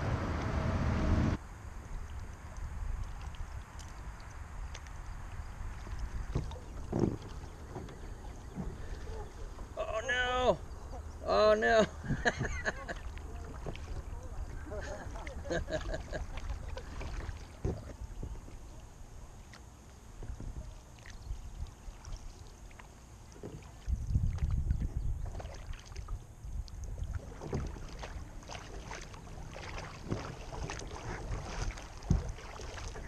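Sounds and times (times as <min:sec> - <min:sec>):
wind rumbling on microphone: 0:00.0 - 0:09.8, 0:11.9 - 0:19.4, 0:20.0 - 0:22.6, 0:23.4 - 0:33.0
paddle splashing and dripping: 0:01.5 - 0:33.0.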